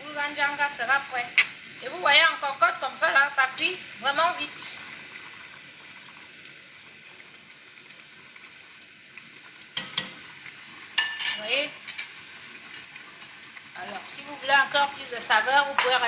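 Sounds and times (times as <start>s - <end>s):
food sizzling in a pot: 0.0s - 16.0s
metal utensil clinking on pot: 9.8s - 10.2s, 11.0s - 13.4s, 15.7s - 16.0s.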